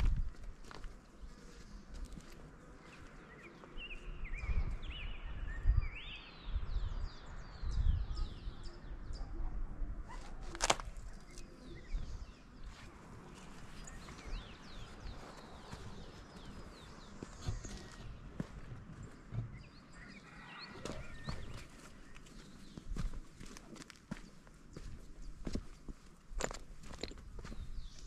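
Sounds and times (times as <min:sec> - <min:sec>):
footsteps on rocky dirt trail: 0:00.0 - 0:04.0, 0:10.6 - 0:28.0
small birds chirping: 0:10.2 - 0:28.0.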